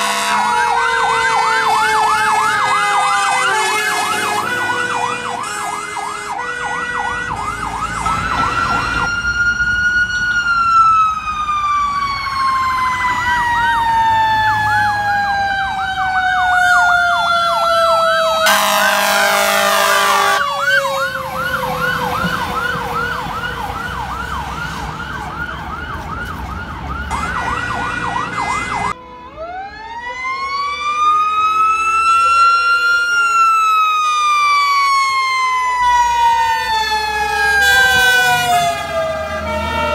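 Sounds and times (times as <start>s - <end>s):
horn blast: 0.0s - 0.7s, 18.4s - 20.5s
two-tone horn: 0.0s - 0.7s, 3.2s - 7.4s, 18.4s - 21.0s, 37.6s - 39.9s
mechanical siren whine: 0.0s - 24.6s
electronic siren yelping: 0.0s - 39.9s.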